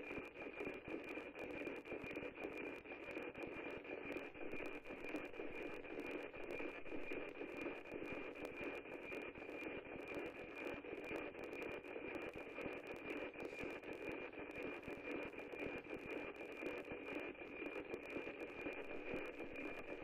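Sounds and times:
steady high radio tone: 18.6s - 20.0s.

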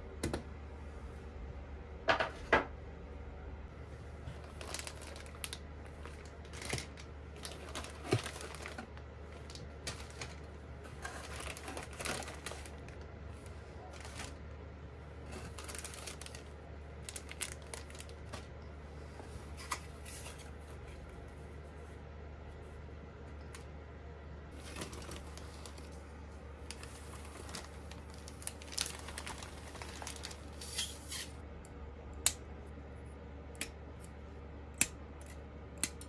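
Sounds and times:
steady low hum: 0.0s - 36.0s
hands handling plastic parts: 4.3s - 14.4s.

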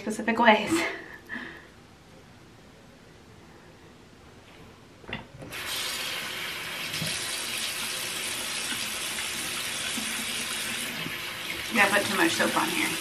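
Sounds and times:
water running from sink tap: 5.5s - 13.0s.

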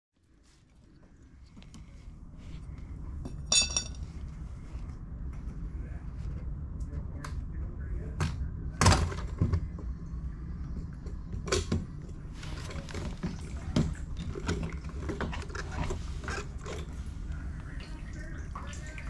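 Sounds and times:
steady low hum: 0.2s - 19.0s
tools and parts clattering: 3.3s - 4.0s.

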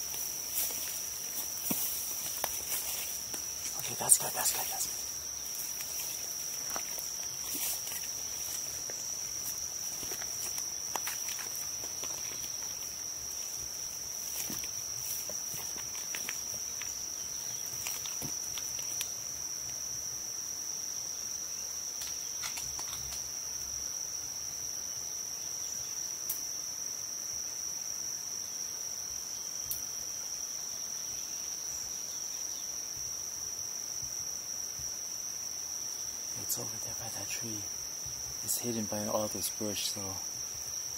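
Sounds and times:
faint rustles and clicks: 0.0s - 19.1s
insects shrilling: 0.0s - 20.1s, 35.9s - 40.9s.

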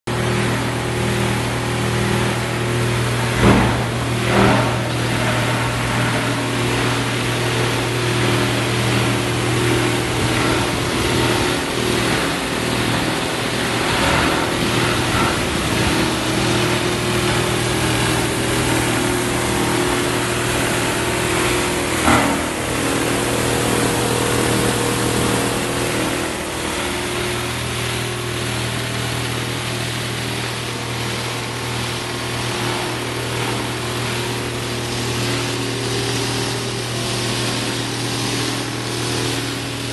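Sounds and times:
plastic crusher grinding: 2.5s - 39.9s
sharp knocks: 3.3s - 6.1s.

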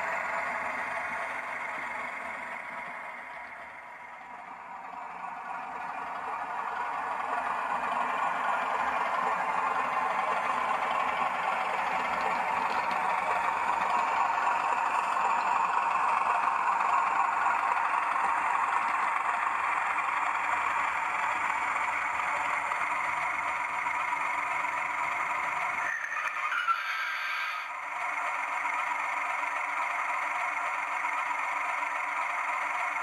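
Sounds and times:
model train diesel engine sound: 0.0s - 33.0s
wheel and track noise: 0.0s - 33.0s.

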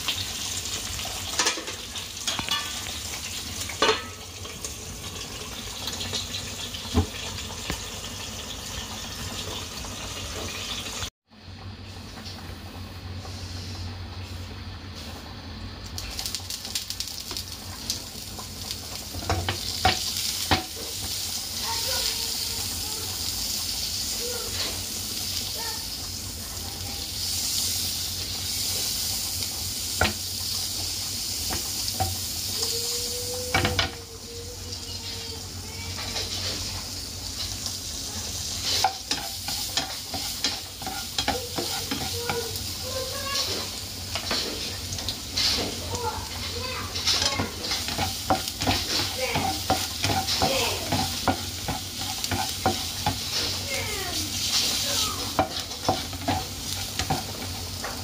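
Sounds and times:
butter and garlic sizzling in pan: 0.0s - 11.1s, 12.0s - 58.0s
spatula scraping and knocking pan: 38.4s - 58.0s.

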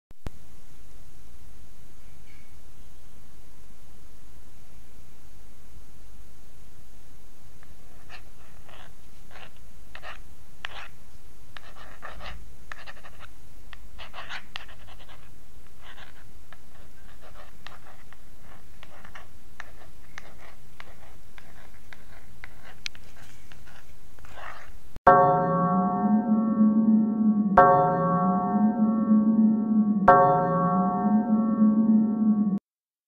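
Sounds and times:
pencil scratching on paper: 7.9s - 11.0s, 11.6s - 13.3s, 14.0s - 24.8s.

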